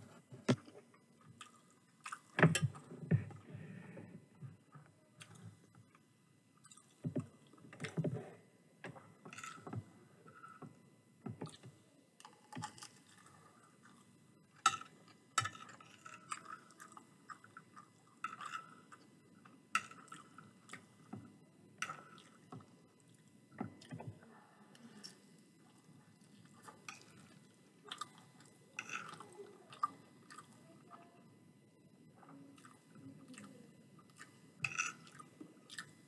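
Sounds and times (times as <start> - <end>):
chewing: 6.6 - 7.0, 25.0 - 30.6, 32.6 - 34.4, 35.0 - 36.0.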